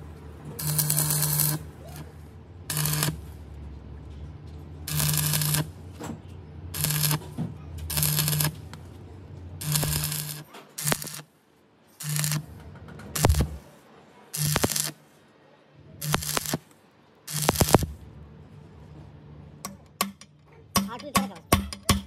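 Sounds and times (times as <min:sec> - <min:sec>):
arc welding crackle and buzz: 0:00.0 - 0:04.1, 0:04.8 - 0:06.0, 0:06.7 - 0:15.1, 0:15.9 - 0:18.1.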